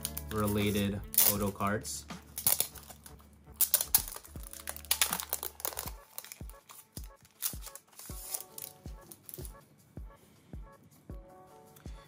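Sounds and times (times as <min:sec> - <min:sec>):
background music with deep beats: 0:00.0 - 0:12.0
packaging crinkling and rustling: 0:02.4 - 0:09.6.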